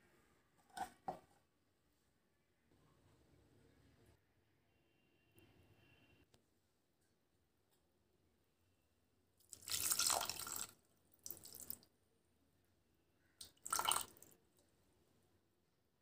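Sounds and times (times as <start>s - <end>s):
water pouring and splashing into pot: 9.5s - 11.9s, 13.4s - 14.4s.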